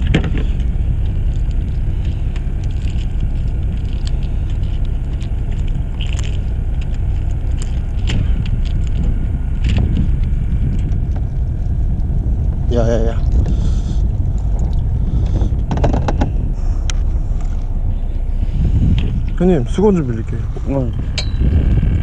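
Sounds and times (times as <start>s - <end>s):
boat deck low rumble: 0.0s - 22.0s.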